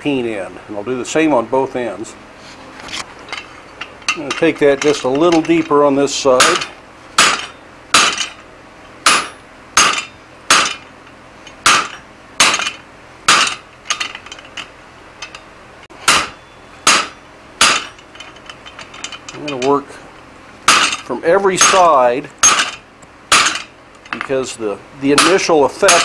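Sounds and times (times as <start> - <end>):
hammer blows ringing on metal: 6.4 - 8.3, 9.0 - 10.8, 16.0 - 18.0, 21.6 - 22.7, 25.2 - 26.0.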